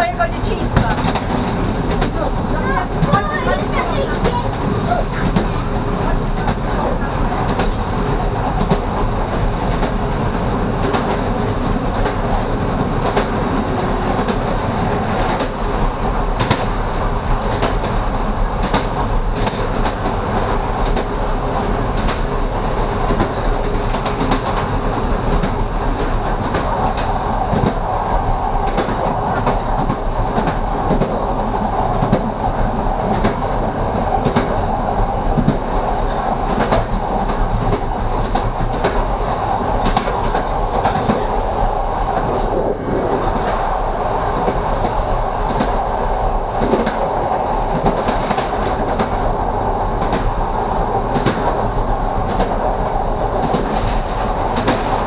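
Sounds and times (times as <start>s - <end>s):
train wheels clattering over joints: 0.0s - 16.8s
train rumble: 0.0s - 55.0s.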